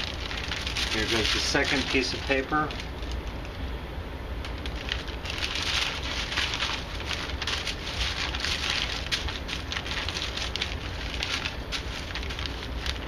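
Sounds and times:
paper and plastic bag crinkling: 0:00.0 - 0:03.6, 0:04.4 - 0:13.0.

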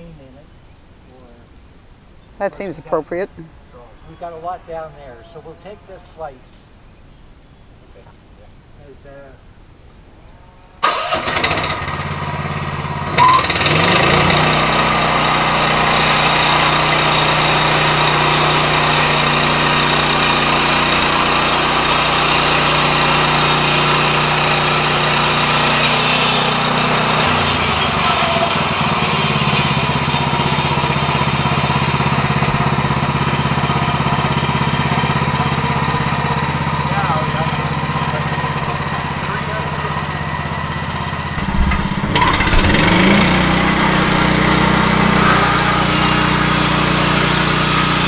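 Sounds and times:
gasoline engine running: 0:10.8 - 0:48.0
band saw blade sawing wood: 0:13.7 - 0:32.0, 0:41.4 - 0:48.0.

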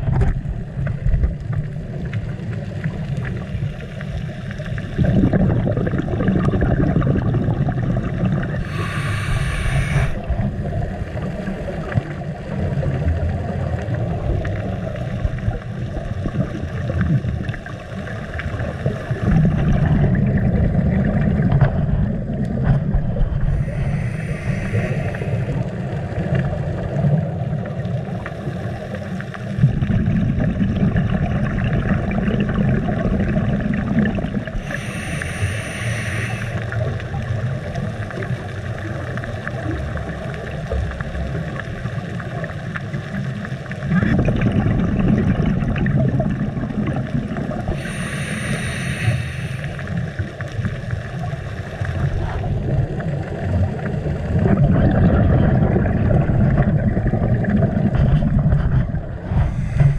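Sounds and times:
muffled underwater rumble: 0:00.0 - 0:59.9
scuba regulator bubbling bursts: 0:04.8 - 0:12.2, 0:18.2 - 0:27.2, 0:29.6 - 0:37.4, 0:43.7 - 0:50.8, 0:51.9 - 0:59.9.

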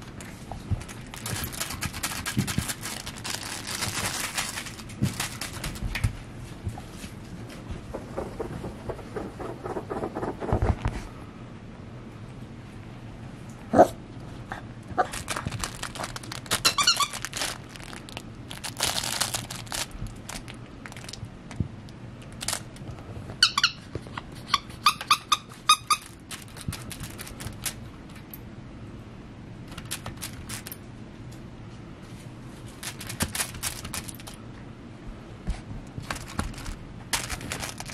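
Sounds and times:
rustling: 0:00.2 - 0:10.0, 0:15.0 - 0:21.1, 0:36.0 - 0:37.9
puppy squeaking: 0:16.6 - 0:17.2, 0:23.4 - 0:26.2.

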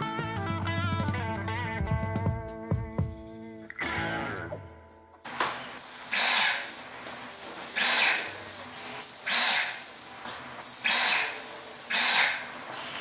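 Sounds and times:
paint sprayer hissing: 0:05.3 - 0:13.0.

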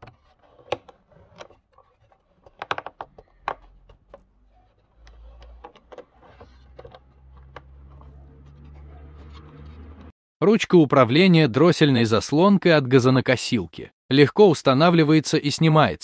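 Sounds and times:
plastic steering wheel clicks and creaks: 0:00.0 - 0:10.1.

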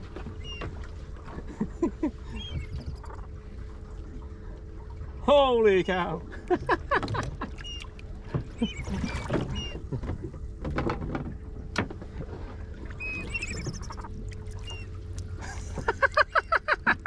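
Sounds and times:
knocks and rustles of fishing line: 0:00.0 - 0:01.6, 0:09.2 - 0:12.9
boat engine idling: 0:00.0 - 0:17.0
faint constant hum: 0:00.0 - 0:17.0
short high squeaks: 0:00.3 - 0:00.8, 0:07.6 - 0:09.9, 0:12.9 - 0:15.0.

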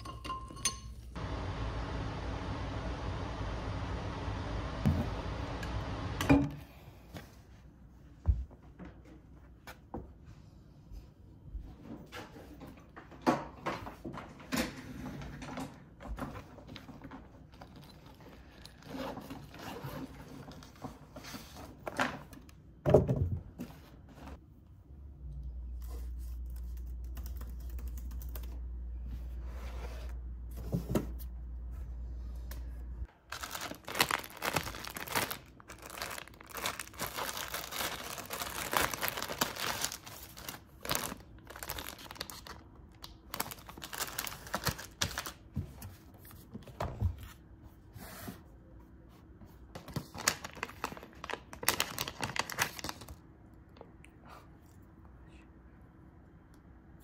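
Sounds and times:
crinkling and tearing: 0:33.3 - 0:45.4, 0:50.0 - 0:53.2.

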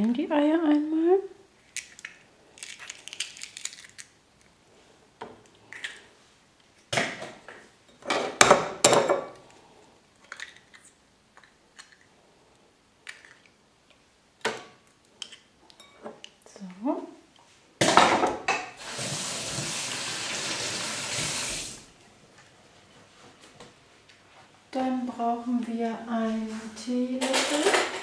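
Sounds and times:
eggshells cracking: 0:01.6 - 0:04.5, 0:10.2 - 0:12.1.

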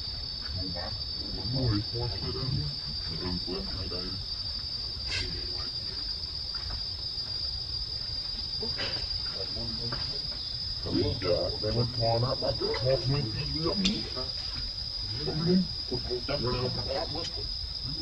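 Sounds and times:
high-pitched insect drone: 0:00.0 - 0:18.0.

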